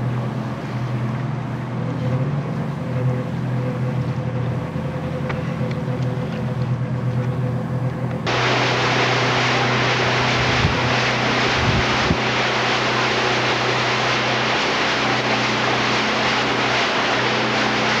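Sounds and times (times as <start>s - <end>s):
motor humming: 0.0s - 18.0s
rushing splashing water: 8.2s - 18.0s.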